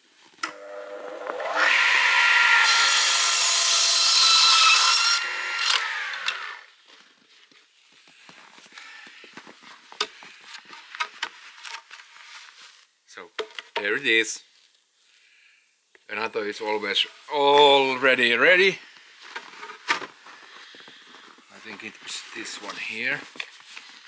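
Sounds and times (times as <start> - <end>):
saw blade cutting wood: 0.4 - 6.6
mitre saw motor whine: 0.4 - 6.7.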